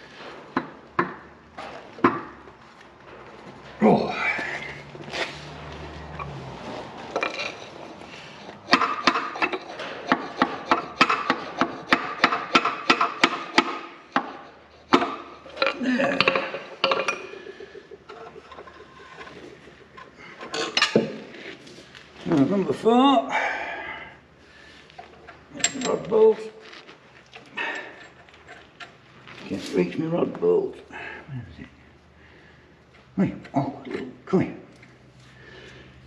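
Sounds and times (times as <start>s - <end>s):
sharp metallic clicks of hand tools: 8.4s - 17.4s.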